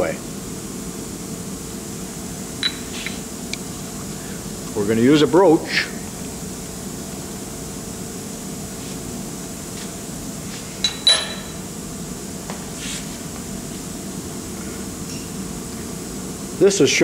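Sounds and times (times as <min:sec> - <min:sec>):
background hum: 0:00.0 - 0:17.0
metal part clinking: 0:10.8 - 0:11.6.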